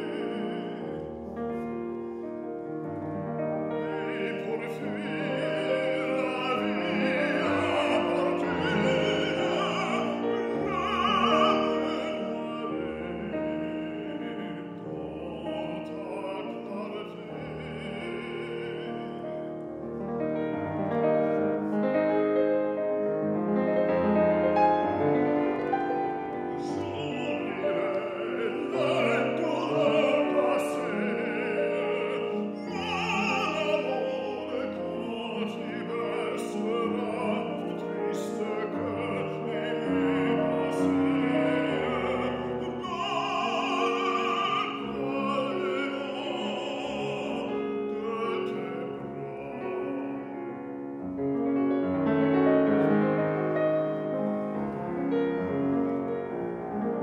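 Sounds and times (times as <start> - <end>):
tenor singing with vibrato: 0.0 - 1.9, 3.4 - 19.6, 24.0 - 51.0
piano accompaniment: 0.0 - 57.0.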